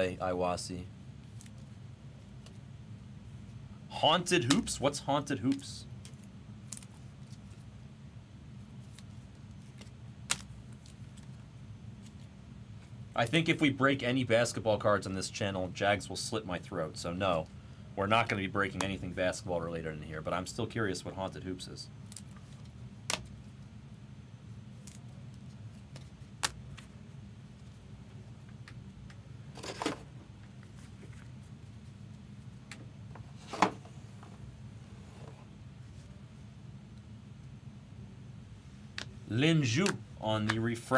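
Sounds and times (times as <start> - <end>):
steady low hum: 0.0 - 40.9
trading cards in plastic sleeves: 1.2 - 2.6, 4.3 - 7.7, 8.6 - 12.9.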